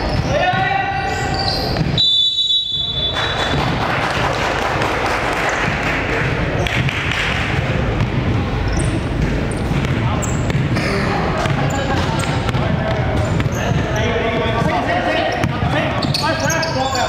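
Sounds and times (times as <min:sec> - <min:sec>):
basketball game noise: 0:00.0 - 0:17.0
referee's whistle blast: 0:01.3 - 0:03.6
ball thudding on court: 0:06.6 - 0:08.3, 0:09.2 - 0:10.8.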